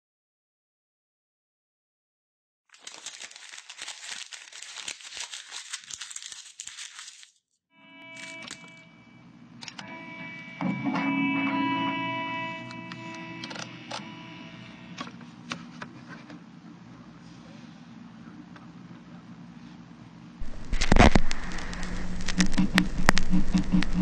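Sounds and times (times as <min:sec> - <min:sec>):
paper crinkling: 0:02.7 - 0:07.5, 0:08.2 - 0:08.8, 0:20.4 - 0:24.0.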